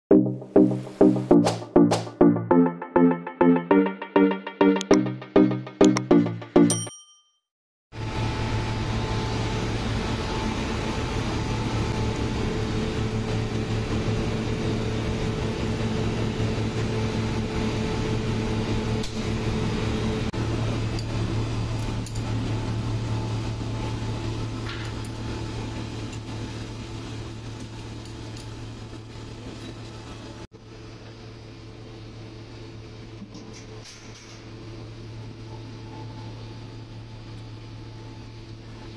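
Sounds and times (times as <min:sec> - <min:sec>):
ship machinery drone: 0:08.0 - 0:26.2.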